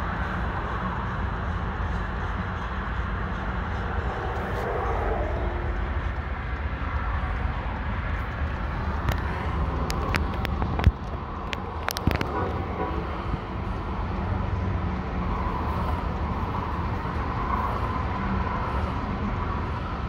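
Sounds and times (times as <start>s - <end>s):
train wheels rumbling on track: 0.0s - 20.0s
sharp clicks and clanks: 5.7s - 13.2s.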